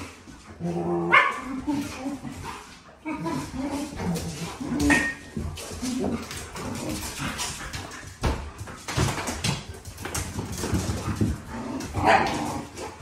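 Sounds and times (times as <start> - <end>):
dogs whining and vocalising: 0.0 - 8.2
paws scuffling on hard floor: 0.0 - 13.0.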